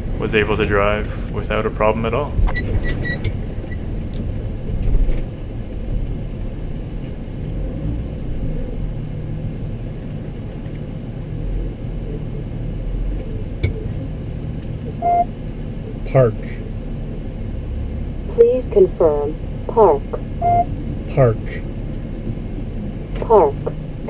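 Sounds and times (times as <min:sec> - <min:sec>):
engine and road noise rumble: 0:00.0 - 0:24.0
short electronic beep: 0:15.0 - 0:15.3, 0:20.4 - 0:20.7.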